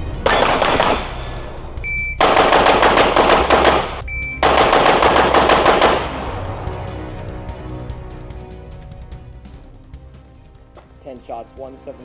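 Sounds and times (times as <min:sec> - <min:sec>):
pistol shots: 0:00.2 - 0:01.4, 0:02.2 - 0:06.3.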